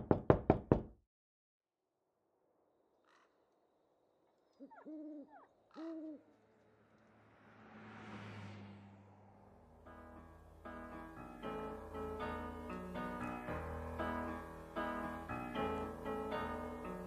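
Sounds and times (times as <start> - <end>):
delivery truck passing: 6.3 - 13.2.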